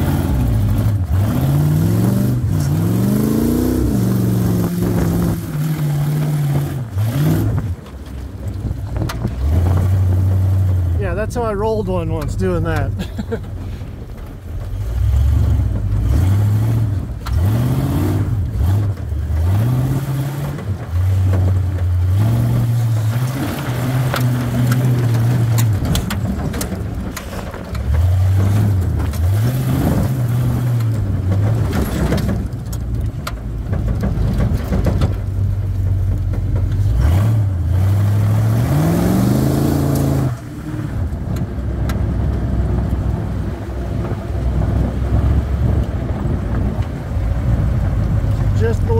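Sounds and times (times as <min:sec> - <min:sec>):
engine revving: 0:00.0 - 0:08.0, 0:14.7 - 0:33.1, 0:36.7 - 0:48.9.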